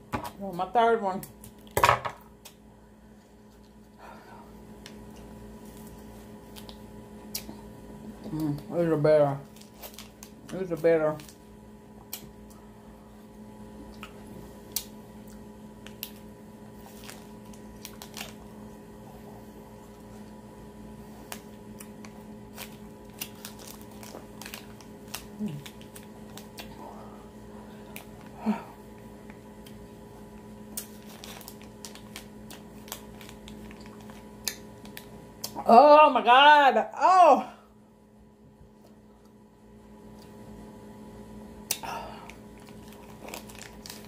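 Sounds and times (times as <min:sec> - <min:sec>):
steady low hum: 0:00.0 - 0:44.0
plastic sleeve crinkling: 0:09.4 - 0:11.4, 0:15.8 - 0:18.5, 0:21.2 - 0:26.7, 0:30.7 - 0:35.1, 0:42.6 - 0:44.0.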